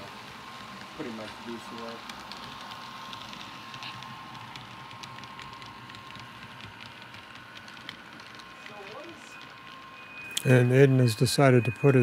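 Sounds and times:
model train rumble and hiss: 0:00.0 - 0:08.5
small wheel clicks: 0:00.0 - 0:10.5
steady high whine: 0:00.0 - 0:12.0.

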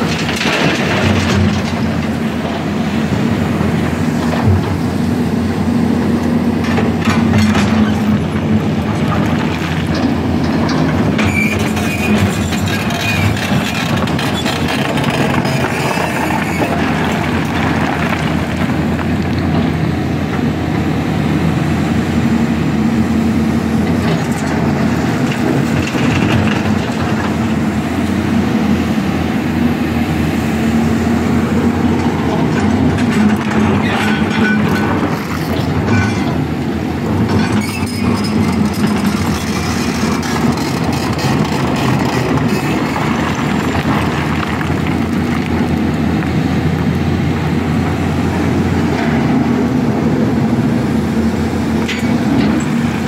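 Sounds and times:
rattling clatter of rock: 0:00.0 - 0:05.0, 0:06.6 - 0:20.5, 0:23.8 - 0:28.0, 0:31.9 - 0:46.3
excavator diesel engine: 0:00.0 - 0:53.0.

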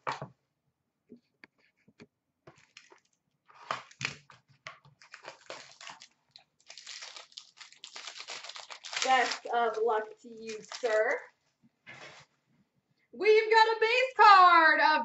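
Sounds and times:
foil wrapper crinkling: 0:02.5 - 0:11.4.

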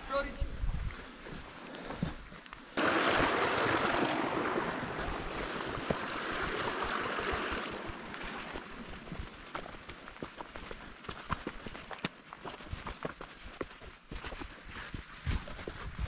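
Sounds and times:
rushing stream water: 0:02.8 - 0:12.5
faint footsteps clicking: 0:08.5 - 0:16.0.

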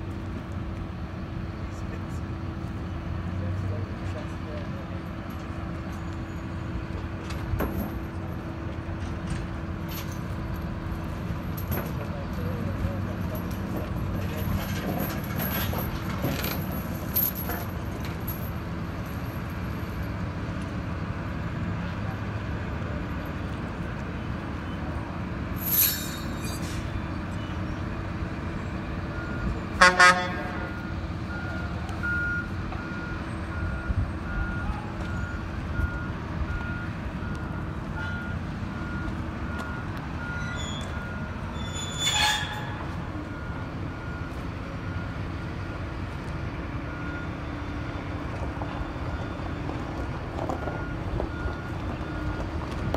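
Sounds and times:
heavy diesel machinery rumbling: 0:00.0 - 0:52.9
reversing alarm beeping: 0:29.1 - 0:46.2, 0:46.8 - 0:52.9
horn toots: 0:29.8 - 0:30.7.

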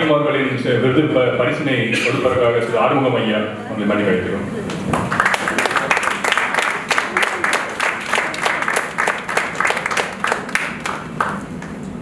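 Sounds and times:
audience applauding: 0:04.7 - 0:11.8.

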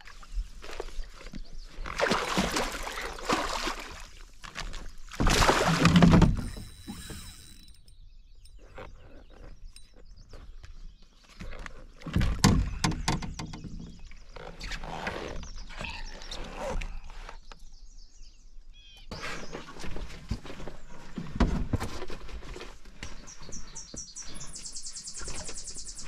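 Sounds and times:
fish splashing: 0:01.9 - 0:07.6
fishing line and tackle handling: 0:06.2 - 0:11.8
knocks against canoe hull: 0:12.1 - 0:14.0.

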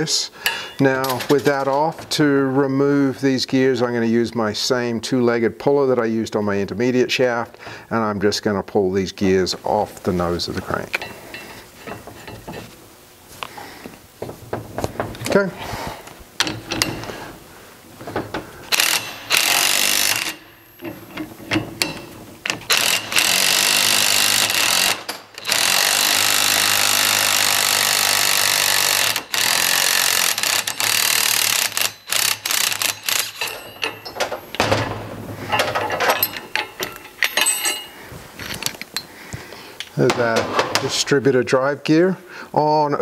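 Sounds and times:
metal clicks and rattles: 0:16.4 - 0:17.2, 0:18.0 - 0:23.6, 0:28.9 - 0:39.1
cordless driver running: 0:18.7 - 0:20.4, 0:22.7 - 0:33.6.

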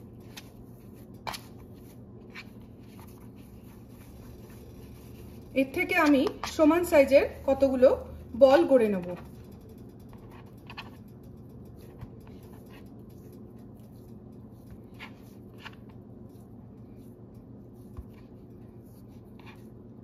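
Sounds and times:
steady low hum: 0:00.0 - 0:20.0
fingers pressing soft dough: 0:08.9 - 0:20.0.

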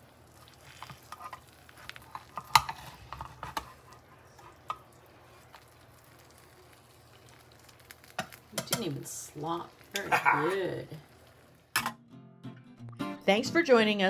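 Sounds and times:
metal spatula scraping ceramic dish: 0:02.1 - 0:04.6.

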